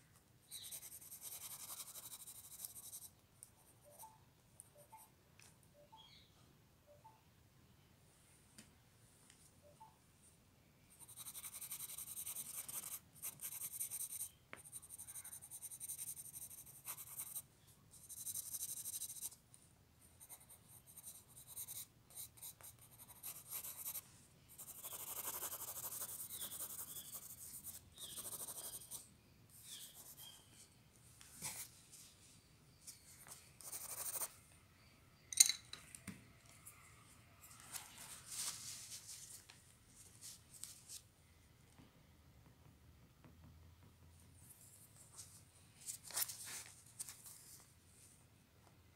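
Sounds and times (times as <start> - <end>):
pencil scratching on paper: 0.5 - 3.1, 11.0 - 17.4, 18.0 - 19.4, 20.2 - 29.0, 29.6 - 30.4, 33.2 - 34.4.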